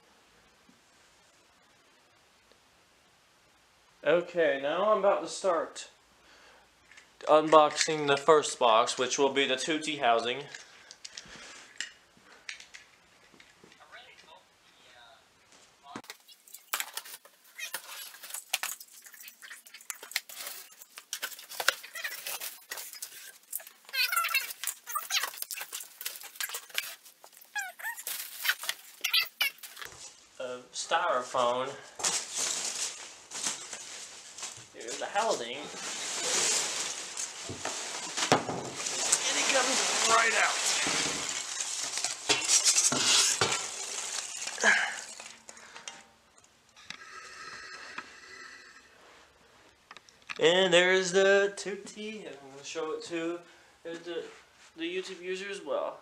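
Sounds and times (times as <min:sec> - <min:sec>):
cardboard rustling: 0:16.0 - 0:30.2, 0:31.9 - 0:45.6.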